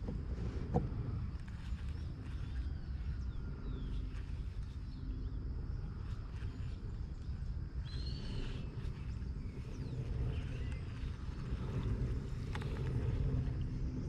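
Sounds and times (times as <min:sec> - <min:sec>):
steady low rumble: 0:00.0 - 0:14.0
bird chirps: 0:06.4 - 0:11.3.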